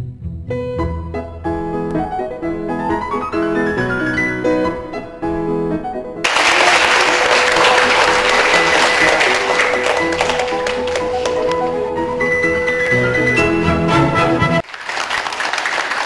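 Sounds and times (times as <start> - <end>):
piano and strings music: 0.0 - 14.7
loud applause: 6.3 - 11.8, 14.6 - 16.0.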